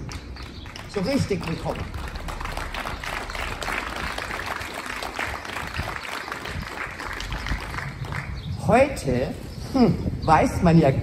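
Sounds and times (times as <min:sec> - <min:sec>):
audience clapping: 0:00.0 - 0:08.5.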